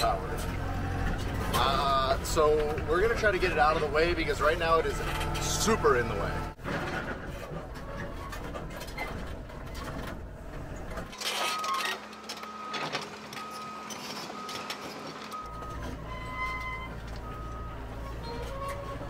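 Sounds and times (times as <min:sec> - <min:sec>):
excavator diesel engine rumble: 0:00.0 - 0:19.0.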